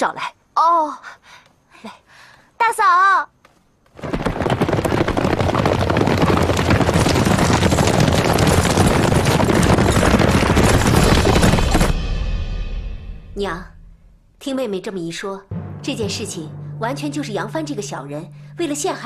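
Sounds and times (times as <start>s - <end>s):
horses galloping: 3.9s - 12.0s.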